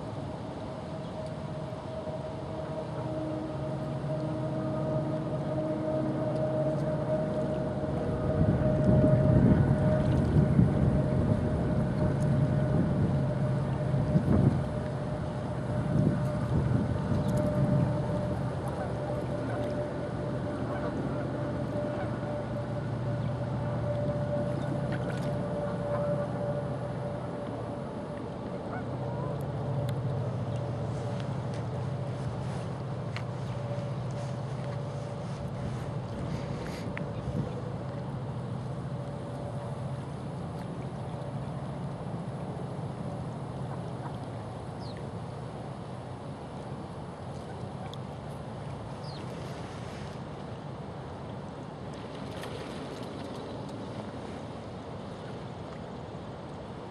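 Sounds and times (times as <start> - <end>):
low outdoor rumble: 0.0 - 56.9
thin hum: 0.7 - 45.1.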